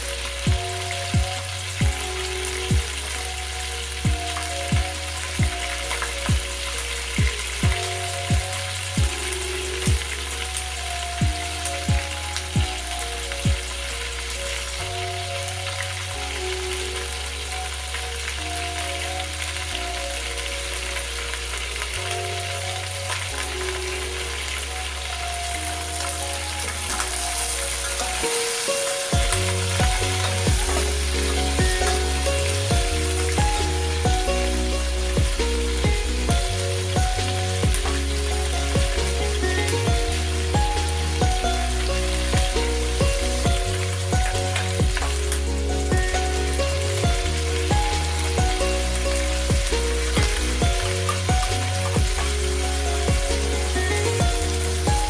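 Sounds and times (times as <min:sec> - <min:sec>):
electronic music with bass: 0:00.0 - 0:55.0
frying sizzle: 0:00.0 - 0:55.0
kick drum beat: 0:00.5 - 0:02.0, 0:02.7 - 0:02.9, 0:04.1 - 0:05.7, 0:06.3 - 0:06.5, 0:07.2 - 0:09.2, 0:29.1 - 0:30.8, 0:31.6 - 0:31.9, 0:32.7 - 0:34.3, 0:35.2 - 0:37.9, 0:38.8 - 0:39.1, 0:39.9 - 0:41.5, 0:42.3 - 0:45.1, 0:45.9 - 0:46.2, 0:47.0 - 0:48.6, 0:49.5 - 0:52.2, 0:53.1 - 0:53.3, 0:54.2 - 0:55.0.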